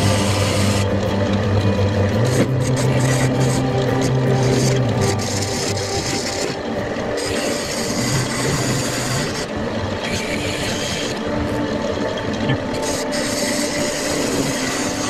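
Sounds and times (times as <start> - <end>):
lathe motor hum: 0.0 - 15.0
chisel scraping wood: 2.2 - 9.5.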